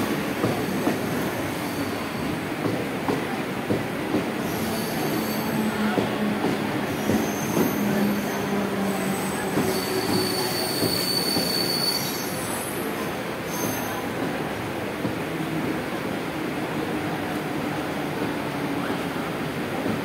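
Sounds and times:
train wheels rumbling on rails: 0.0 - 20.0
high-pitched wheel squeal: 7.2 - 12.6.

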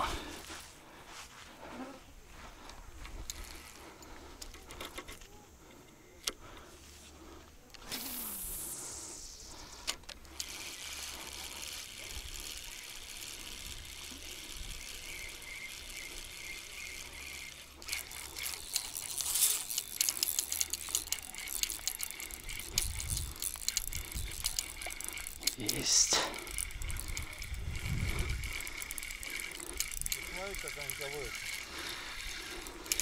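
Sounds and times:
fishing reel whirring and clicking: 3.0 - 5.3, 7.2 - 33.0.

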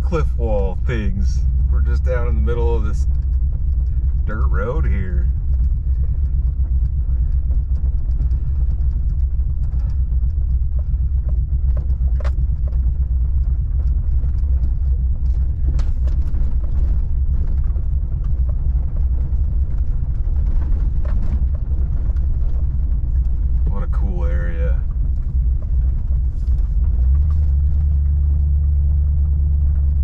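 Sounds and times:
truck driving on dirt road: 0.0 - 30.0
small clicks and knocks: 5.5 - 23.6.

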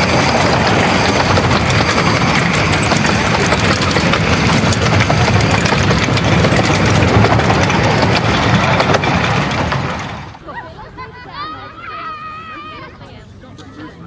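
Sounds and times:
train wheels clicking and rattling: 0.0 - 10.5
steam locomotive working: 0.0 - 11.2.

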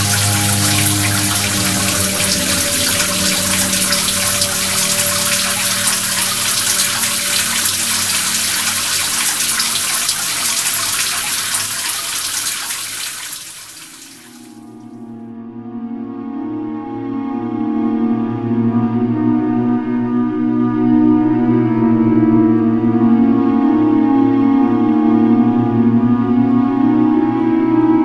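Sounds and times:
soft music drone: 0.0 - 10.5, 15.3 - 28.0
running water: 0.0 - 14.9.

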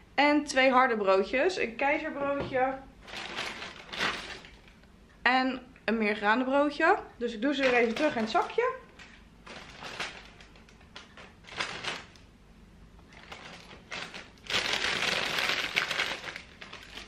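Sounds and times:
paper bag rustling: 3.0 - 4.8, 7.6 - 12.3, 13.1 - 17.0.

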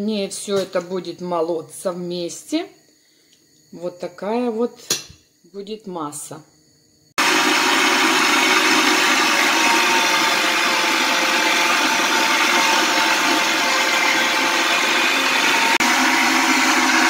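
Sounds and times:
electric meat grinder running: 7.2 - 17.0.

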